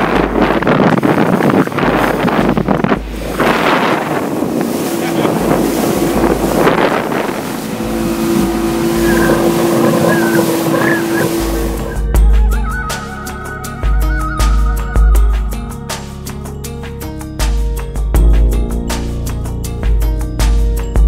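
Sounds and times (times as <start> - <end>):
wind buffeting microphone: 0.0 - 13.0
motorboat engine running: 0.0 - 21.0
water rushing along hull: 0.0 - 21.0.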